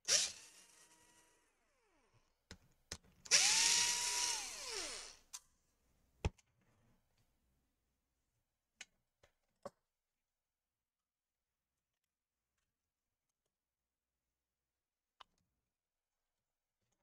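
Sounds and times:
cordless drill whining: 0.0 - 2.1, 3.3 - 5.3.

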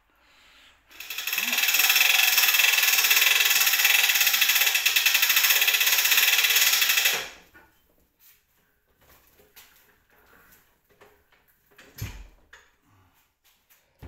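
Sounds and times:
winch ratchet clatter: 0.9 - 7.4.

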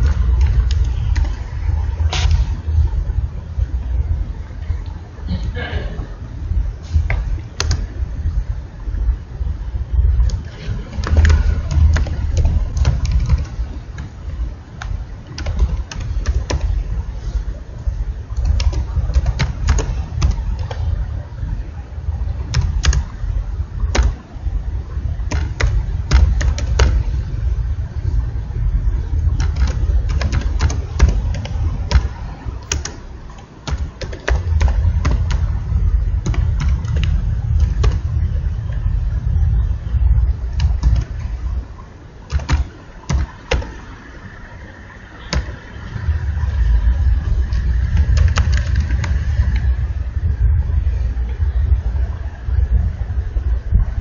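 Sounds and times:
keyboard typing clicks: 0.0 - 2.4, 7.1 - 7.9, 10.2 - 14.2, 14.8 - 16.9, 18.3 - 21.0, 22.4 - 23.2, 23.8 - 24.2, 25.2 - 27.2, 29.1 - 38.8, 40.5 - 41.6, 42.3 - 43.9, 47.5 - 49.7
loud steady low rumble: 0.0 - 54.0.

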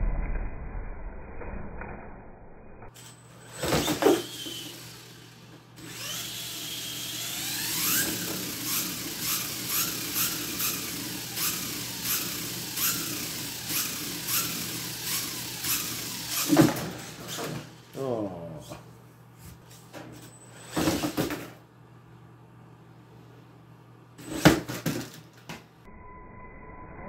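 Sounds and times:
electric motor whining: 3.4 - 17.9
toy truck thud dropping: 24.4 - 25.6.

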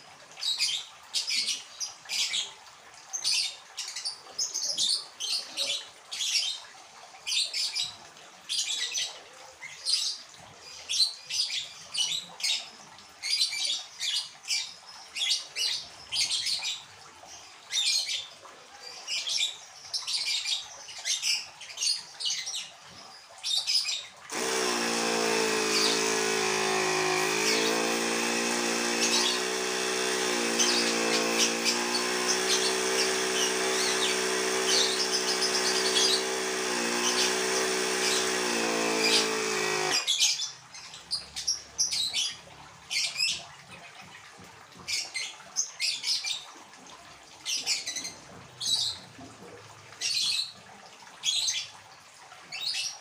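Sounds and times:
air compressor running: 24.3 - 40.1
birds chirping: 24.3 - 40.2.

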